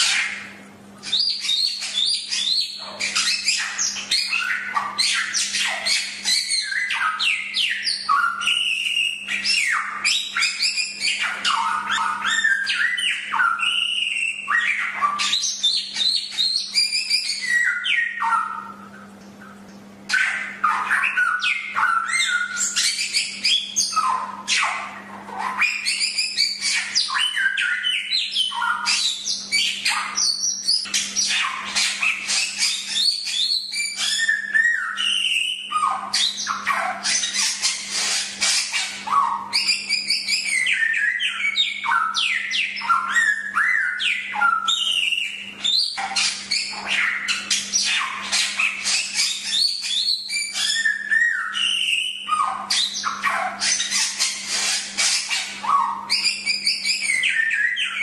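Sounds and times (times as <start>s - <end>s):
songbird singing chirps and trills: 0.0s - 58.0s.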